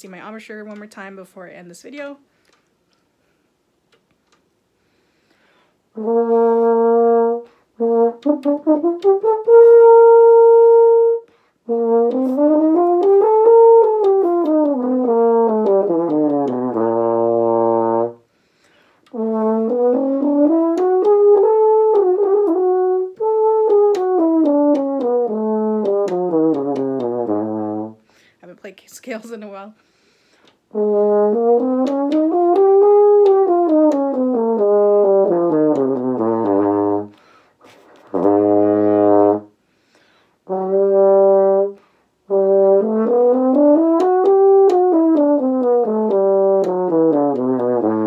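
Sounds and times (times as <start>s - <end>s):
french horn playing: 5.9s - 18.3s, 19.1s - 28.1s, 30.7s - 39.6s, 40.4s - 48.0s.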